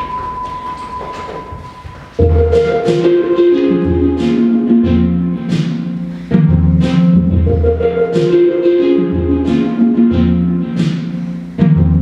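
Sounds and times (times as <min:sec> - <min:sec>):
loud music with heavy beat: 0:00.0 - 0:12.0
deep bass line: 0:02.2 - 0:10.8.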